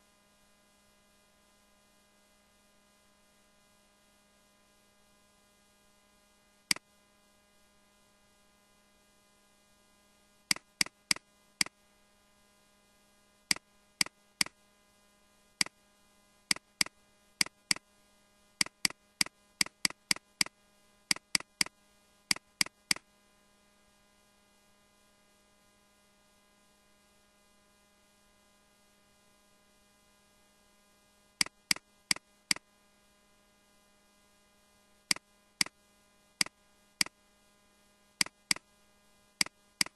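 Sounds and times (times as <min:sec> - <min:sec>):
electrical hum: 0:05.5 - 0:39.9
computer mouse clicking: 0:10.5 - 0:11.8, 0:16.5 - 0:17.8, 0:18.6 - 0:21.7, 0:22.3 - 0:23.0, 0:31.4 - 0:32.6, 0:38.2 - 0:38.6, 0:39.4 - 0:39.9.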